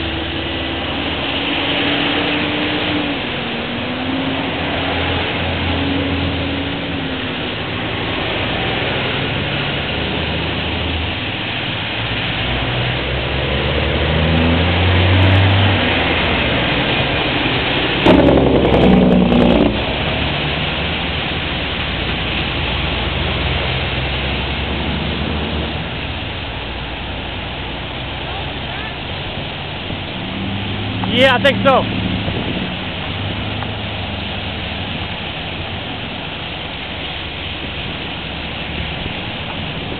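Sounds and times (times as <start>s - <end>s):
diesel engine rumble: 0.0s - 39.9s
tyre hiss on wet road: 0.0s - 39.9s
loud blast: 17.8s - 20.1s.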